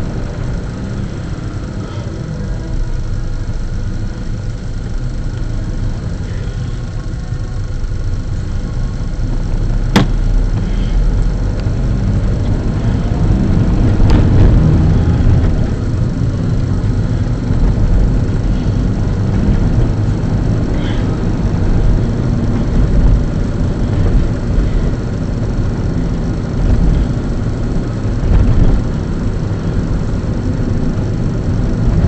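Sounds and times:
car engine and road noise: 0:00.0 - 0:32.0
sharp click or knock: 0:10.0 - 0:10.2.

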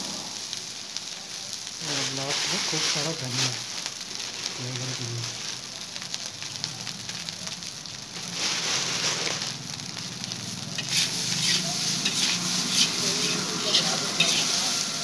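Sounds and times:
rice sizzling in a wok: 0:00.0 - 0:15.0
spatula scraping a wok: 0:10.3 - 0:15.0.

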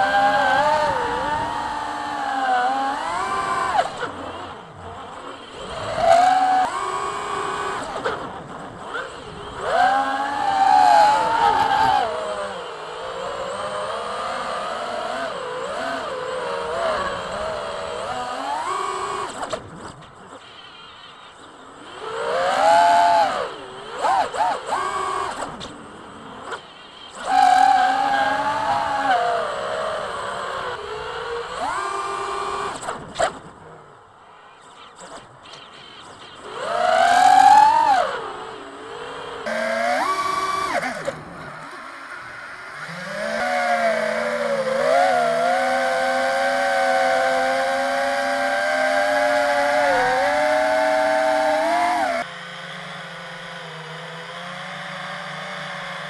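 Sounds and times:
drone propellers whining: 0:00.0 - 0:34.1, 0:34.7 - 0:56.0.

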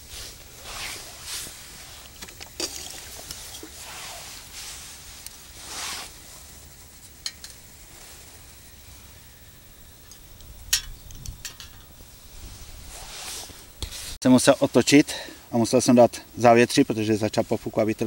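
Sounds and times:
wind rumble on microphone: 0:09.8 - 0:14.2
metal clinks and knocks: 0:10.0 - 0:12.0.

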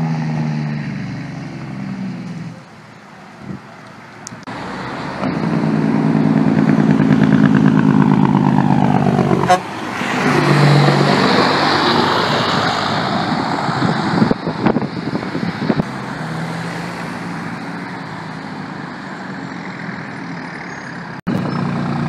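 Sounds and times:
road noise: 0:00.0 - 0:22.0
truck engine running: 0:04.3 - 0:16.1.

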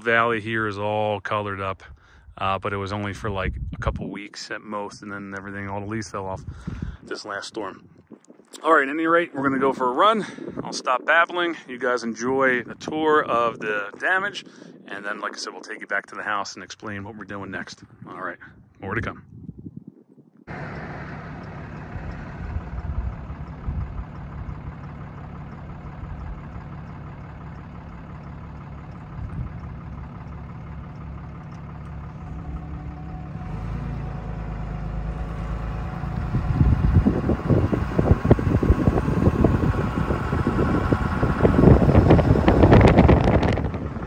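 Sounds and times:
car engine and road noise: 0:20.5 - 0:44.0.

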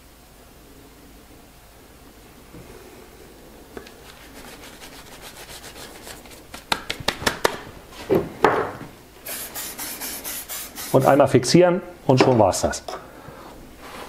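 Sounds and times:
hands rubbing dry foliage: 0:03.9 - 0:07.5, 0:09.3 - 0:11.0.

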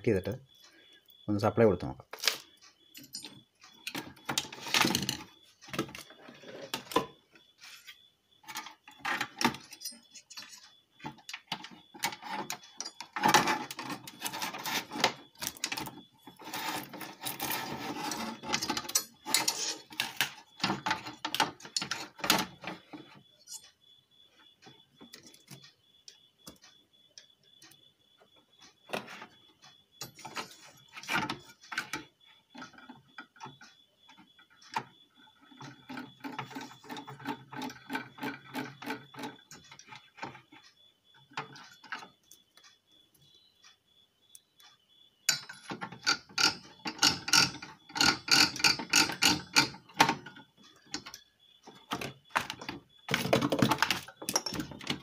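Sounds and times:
tools knocking on metal: 0:45.3 - 0:50.3.

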